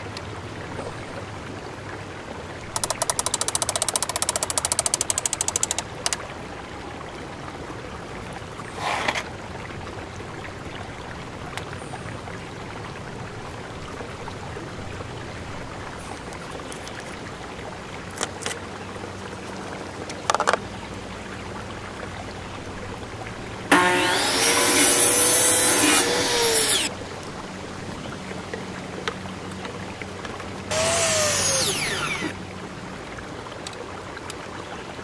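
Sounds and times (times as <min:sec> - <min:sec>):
outdoor background hiss: 0:12.2 - 0:35.0
short rasping noises: 0:23.7 - 0:26.9, 0:30.7 - 0:32.4.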